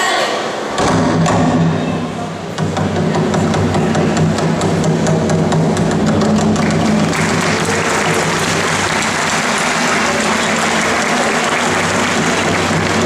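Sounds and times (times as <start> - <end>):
band playing: 2.4 - 13.0
audience applauding: 6.1 - 13.0.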